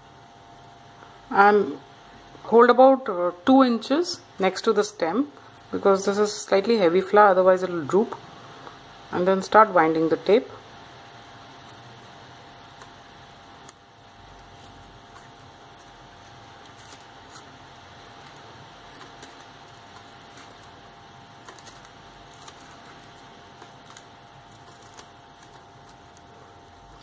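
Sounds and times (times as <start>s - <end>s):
room hum with faint whine: 0.0s - 27.0s
tape crackling and clicking: 10.6s - 27.0s.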